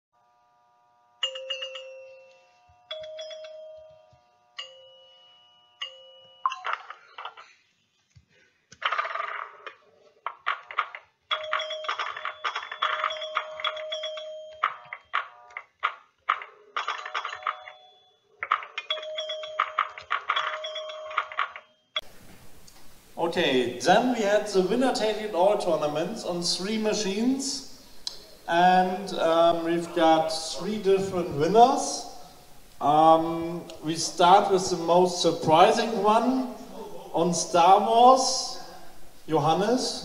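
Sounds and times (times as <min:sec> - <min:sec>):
bell-like electronic chimes: 0:01.2 - 0:06.7, 0:17.0 - 0:21.9.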